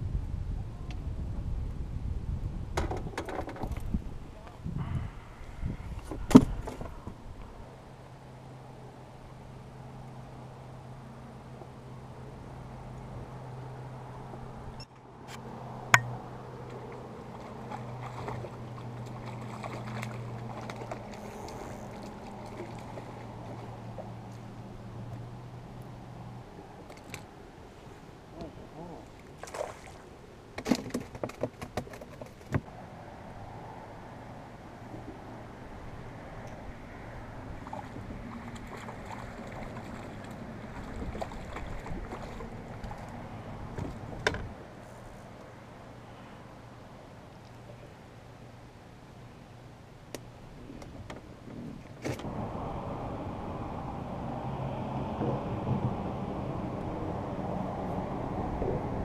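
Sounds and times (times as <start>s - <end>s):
boat motor humming: 4.8s - 29.4s, 33.2s - 59.0s
fish splashing and thrashing: 16.0s - 24.5s, 29.1s - 32.5s, 37.6s - 44.2s
fish splash: 16.8s - 23.8s, 29.4s - 30.1s.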